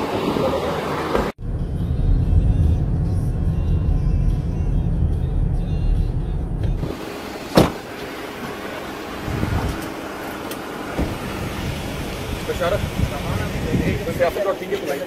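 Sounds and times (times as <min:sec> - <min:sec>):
car cabin driving rumble: 0:00.0 - 0:14.3
wind: 0:00.0 - 0:15.0
soft thump: 0:07.6 - 0:07.8.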